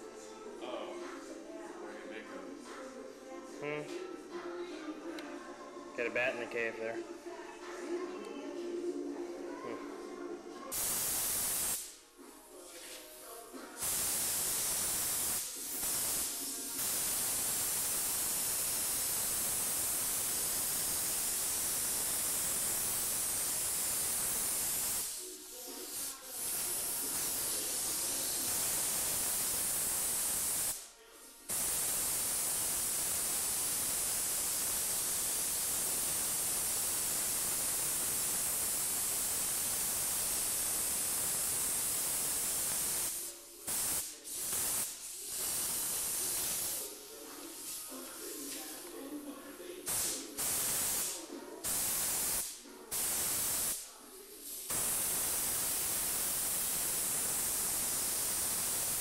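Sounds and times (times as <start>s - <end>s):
paint spray gun hissing: 10.7s - 12.0s, 12.8s - 30.9s, 31.5s - 48.9s, 49.9s - 53.8s, 54.4s - 59.0s.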